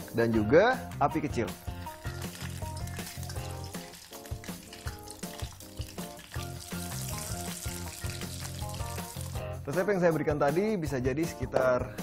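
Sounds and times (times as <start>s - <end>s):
hot oil sizzling: 1.4s - 9.6s.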